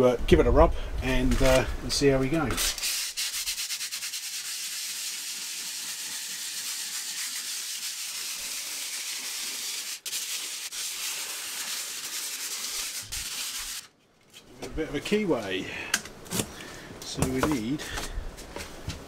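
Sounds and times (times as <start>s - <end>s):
hand sanding wood edge: 2.6s - 13.9s.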